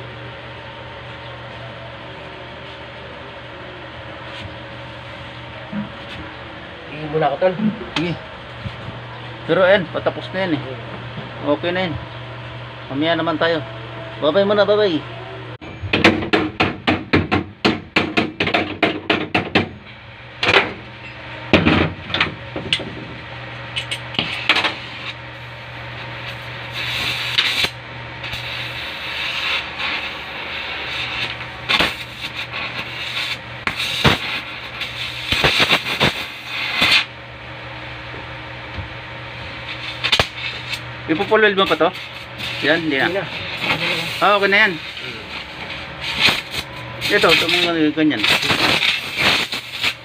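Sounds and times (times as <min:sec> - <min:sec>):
torch hissing: 0:24.1 - 0:37.2, 0:39.4 - 0:50.0.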